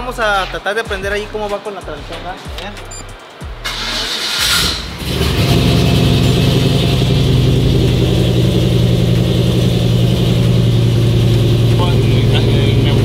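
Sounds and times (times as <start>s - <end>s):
truck engine starting and idling: 3.6s - 13.0s.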